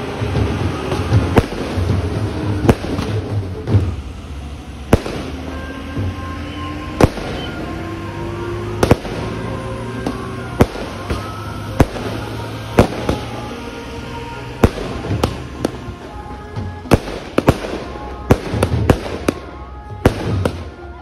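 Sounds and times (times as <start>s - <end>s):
fireworks bangs: 0.0s - 21.0s
small firework pops: 12.8s - 13.4s, 16.9s - 20.8s.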